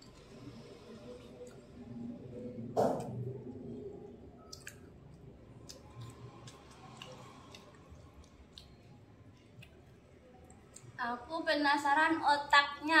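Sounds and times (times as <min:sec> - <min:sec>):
wet squishes of meat: 0:03.1 - 0:11.0.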